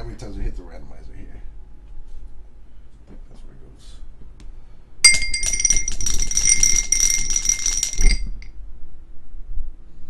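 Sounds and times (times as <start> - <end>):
dice rattling in a glass: 5.1 - 8.5.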